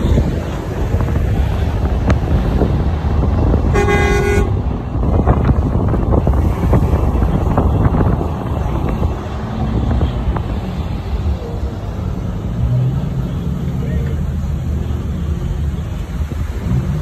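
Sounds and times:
traffic rumble: 0.0s - 17.0s
wind: 0.0s - 17.0s
vehicle horn honk: 3.7s - 4.6s.

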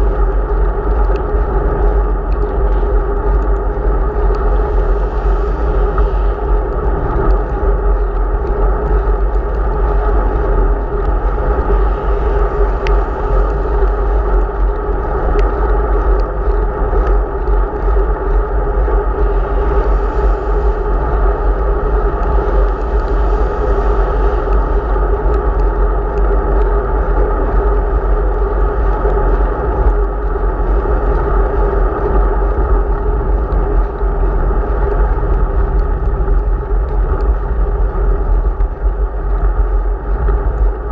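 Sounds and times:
road rumble: 0.0s - 40.9s
wind buffeting microphone: 0.0s - 40.9s.

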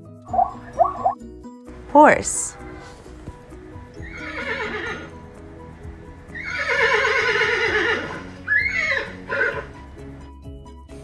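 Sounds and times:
background music: 0.0s - 11.0s
horse neighing: 3.8s - 5.2s, 6.3s - 9.8s.

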